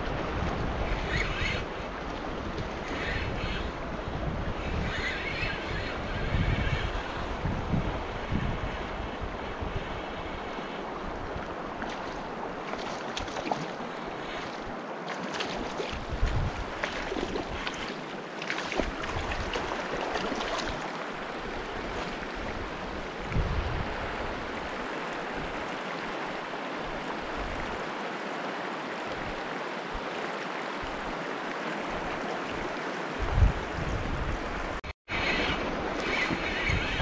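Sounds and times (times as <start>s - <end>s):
wind buffeting microphone: 0.0s - 25.6s, 32.0s - 37.0s
river rushing: 8.9s - 37.0s.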